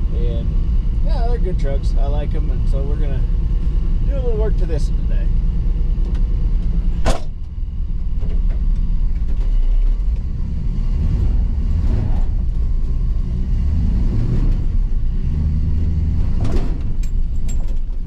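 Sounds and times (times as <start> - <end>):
truck engine rumble: 0.0 - 18.0
sharp clunk: 7.0 - 7.5.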